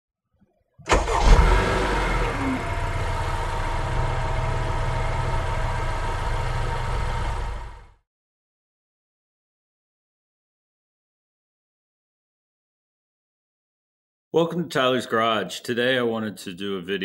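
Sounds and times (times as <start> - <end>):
car engine starting and idling: 0.9 - 8.0.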